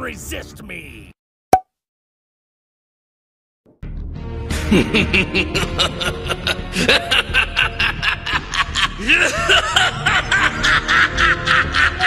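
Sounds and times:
low background music: 3.8 - 12.0
man laughing evilly: 4.5 - 12.0.

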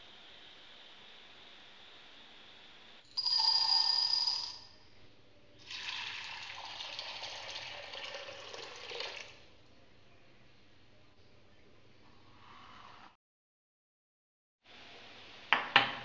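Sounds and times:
water pouring into glass bowl: 5.6 - 9.4.

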